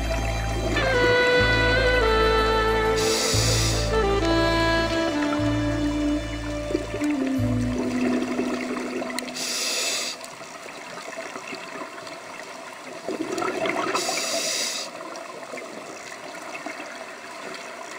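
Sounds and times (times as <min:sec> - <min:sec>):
regulator breaths hissing: 0:03.0 - 0:04.1, 0:09.3 - 0:10.3, 0:13.9 - 0:15.0
air bubbling underwater: 0:03.0 - 0:09.6, 0:13.0 - 0:14.1.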